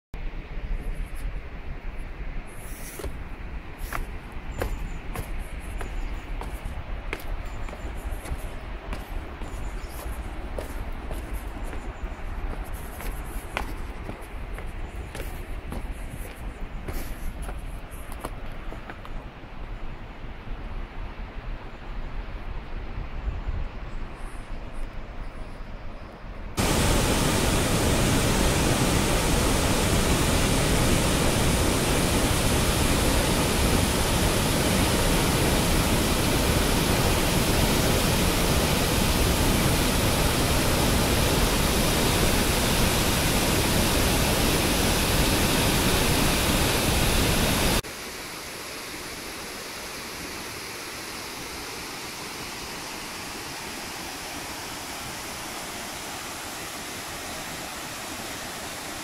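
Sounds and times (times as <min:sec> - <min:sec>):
waterfall rushing: 0:26.6 - 0:49.8.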